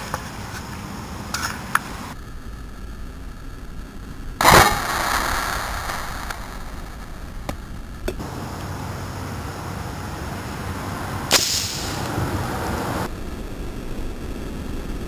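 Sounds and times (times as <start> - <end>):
gas hissing: 4.4 - 13.1
paintball gun pop: 11.3 - 12.1.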